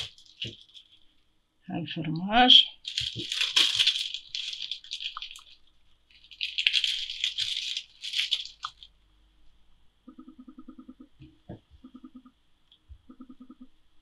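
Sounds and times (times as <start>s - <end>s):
plastic film crinkling: 0.0s - 1.2s, 2.7s - 8.9s.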